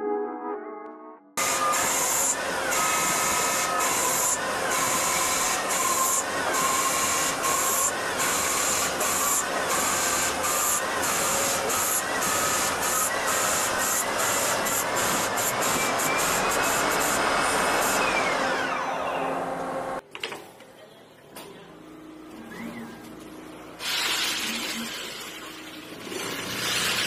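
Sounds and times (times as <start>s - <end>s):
hiss of spraying coolant: 1.4s - 18.0s, 23.8s - 25.2s.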